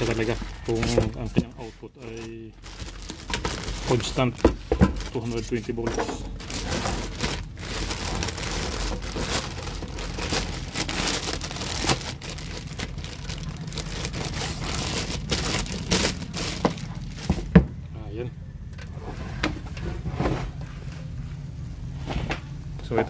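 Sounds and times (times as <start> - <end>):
plastic bag crinkling: 0.0 - 17.6.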